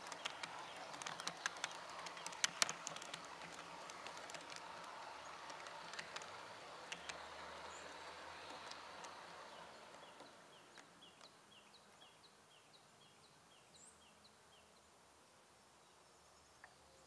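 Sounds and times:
model railcar rolling on track: 0.0 - 11.6.

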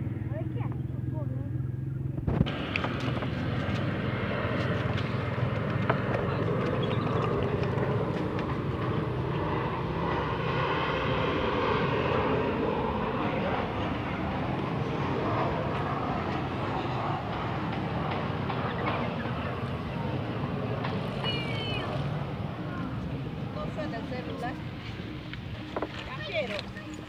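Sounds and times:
motor engine droning: 0.0 - 27.0.

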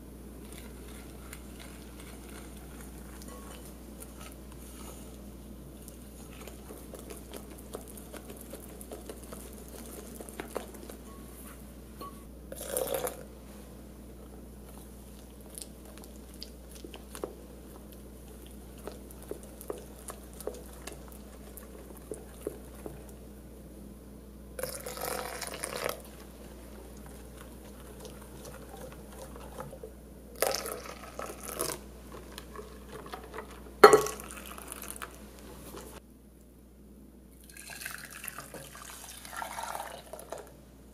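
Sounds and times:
whisk scraping glass bowl: 0.4 - 5.1, 24.6 - 29.8
milk being poured: 24.6 - 29.8, 30.4 - 35.2, 37.4 - 40.5.

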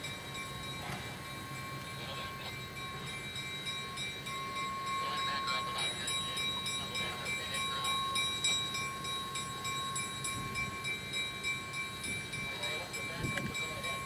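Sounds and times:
diesel locomotive engine running: 0.0 - 14.0.

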